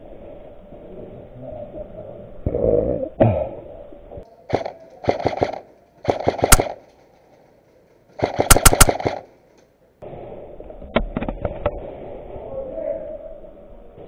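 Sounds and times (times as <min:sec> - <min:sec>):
airsoft rifle firing bursts: 0:04.5 - 0:06.9, 0:08.2 - 0:09.3.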